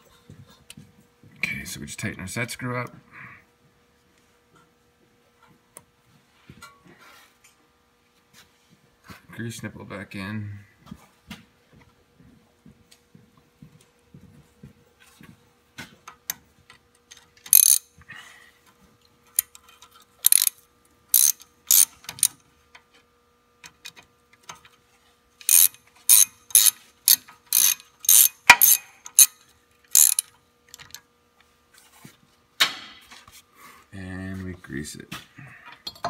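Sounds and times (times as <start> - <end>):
hand ratchet clicking: 17.4 - 17.9, 20.2 - 22.4, 25.4 - 31.0.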